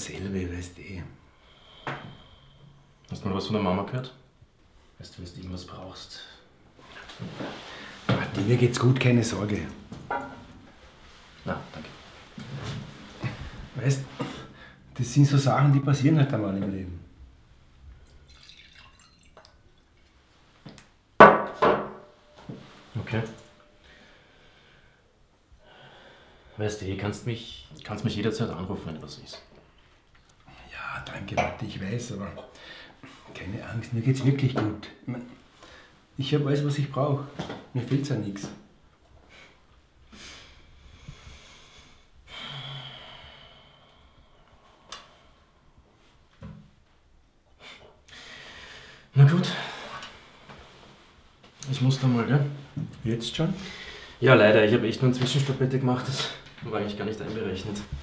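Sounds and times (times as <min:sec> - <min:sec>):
wine trickling into a glass: 0:18.1 - 0:19.8
bottle knocking on glass tabletop: 0:21.2 - 0:22.1.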